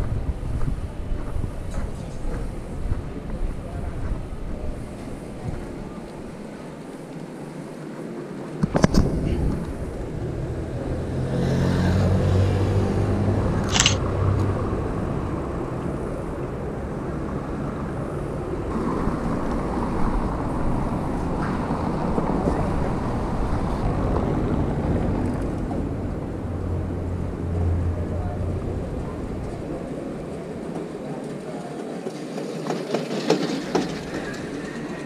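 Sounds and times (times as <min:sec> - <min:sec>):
vehicle engines humming: 0:00.0 - 0:31.6
sharp click: 0:13.6 - 0:14.0.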